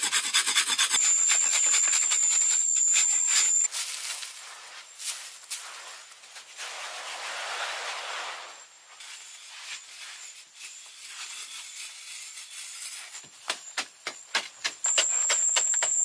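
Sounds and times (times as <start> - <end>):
high-pitched whine: 1.0 - 3.7.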